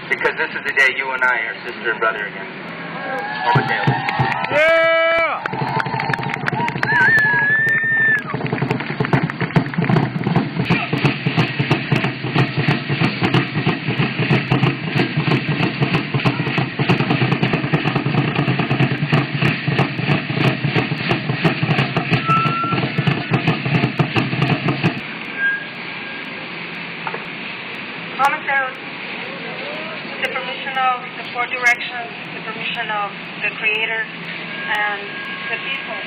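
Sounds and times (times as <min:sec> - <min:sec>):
steady background noise: 0:00.0 - 0:36.0
drumming for a dance: 0:03.4 - 0:25.1.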